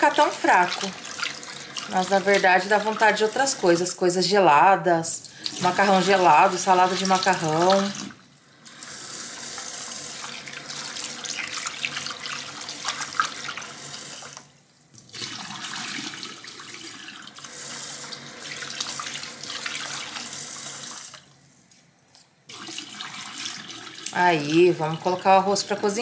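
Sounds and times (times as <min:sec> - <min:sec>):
water poured into sink: 0:05.2 - 0:21.3, 0:22.5 - 0:24.2.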